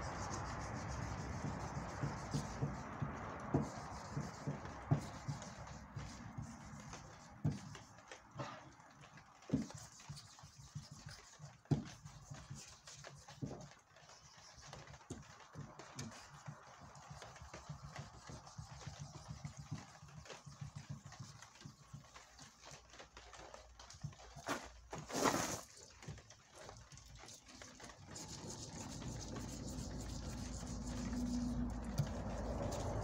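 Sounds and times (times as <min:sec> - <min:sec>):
sandpaper scratching on metal panel: 0:00.0 - 0:05.7, 0:24.4 - 0:25.7, 0:28.1 - 0:33.0.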